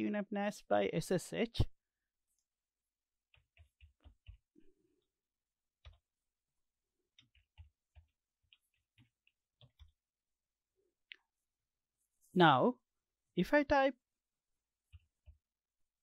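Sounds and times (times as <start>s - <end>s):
faint keyboard typing: 3.3s - 5.2s, 5.8s - 6.2s, 7.1s - 10.0s, 14.8s - 15.5s.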